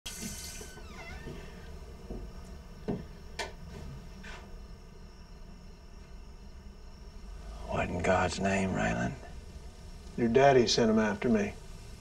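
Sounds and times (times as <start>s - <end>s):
door creak: 0.1s - 1.8s
low steady hum: 0.1s - 12.0s.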